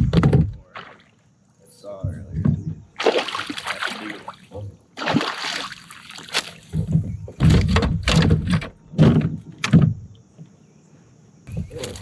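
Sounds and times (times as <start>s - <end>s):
fish splashing in water: 3.0s - 6.8s.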